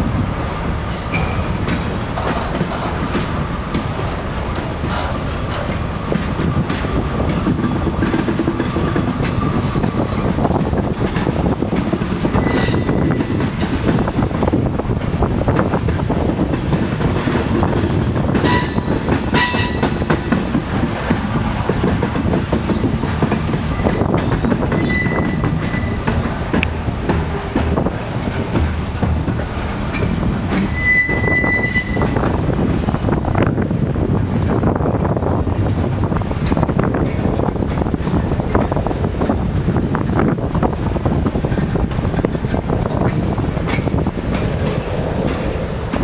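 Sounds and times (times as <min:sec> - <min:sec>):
freight train rumbling: 0:00.0 - 0:46.0
wheel squeals: 0:00.9 - 0:03.0, 0:08.8 - 0:10.3, 0:12.2 - 0:13.6, 0:18.4 - 0:20.0, 0:23.7 - 0:26.3, 0:29.8 - 0:32.3, 0:36.4 - 0:37.4, 0:41.6 - 0:44.8.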